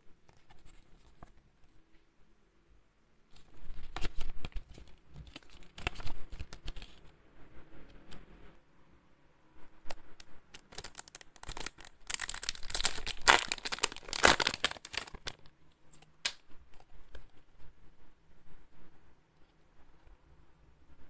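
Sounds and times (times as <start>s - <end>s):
packaging torn and crinkled: 3.8s - 7.0s, 10.5s - 16.9s.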